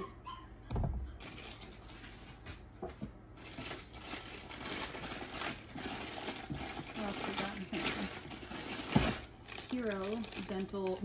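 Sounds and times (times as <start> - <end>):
low thump: 0.7 - 1.1
rummaging through plastic bin: 1.2 - 11.0.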